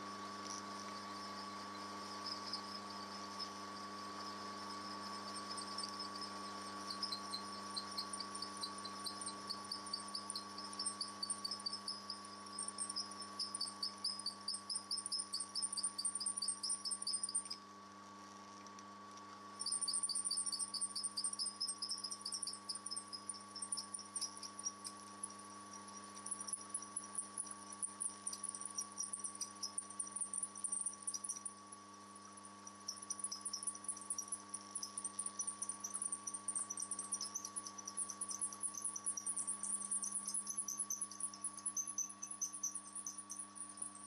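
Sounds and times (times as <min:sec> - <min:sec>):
drill bit squeaking chatter: 0:05.2 - 0:17.6, 0:19.6 - 0:44.0.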